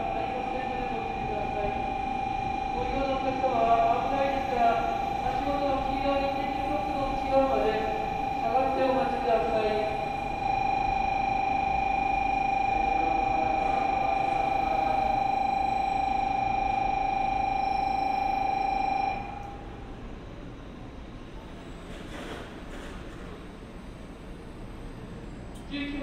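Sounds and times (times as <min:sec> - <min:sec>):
platform warning buzzer: 0:00.0 - 0:19.5
low rumble of train rolling: 0:00.0 - 0:26.0.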